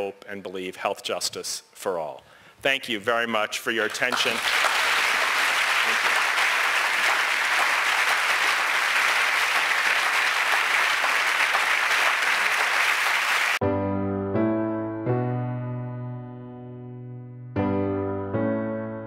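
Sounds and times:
audience applauding: 3.8s - 13.6s
soft piano music: 13.6s - 19.0s.

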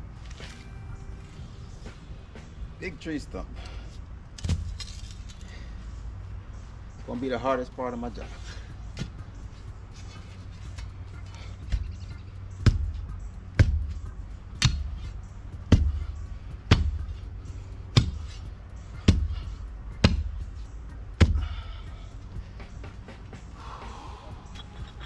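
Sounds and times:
steel bar thudding into dirt: 4.4s - 5.0s.

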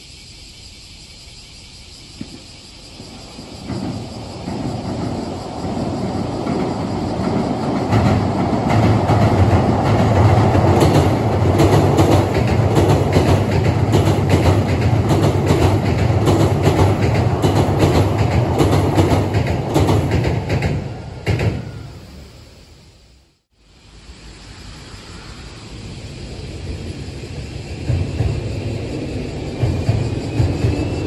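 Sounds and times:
electric train rumbling over bridge: 0.0s - 31.0s
train wheels clacking on rail joints: 2.2s - 21.9s, 27.8s - 31.0s.

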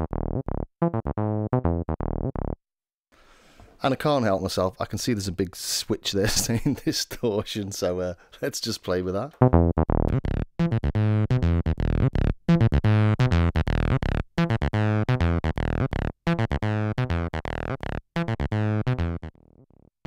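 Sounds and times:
distorted acid synth bassline: 0.0s - 2.6s, 9.4s - 19.5s.

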